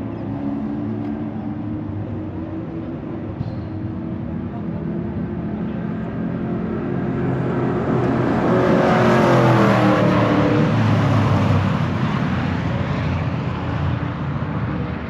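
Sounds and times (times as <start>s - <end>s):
race car passing at speed: 4.6s - 15.0s.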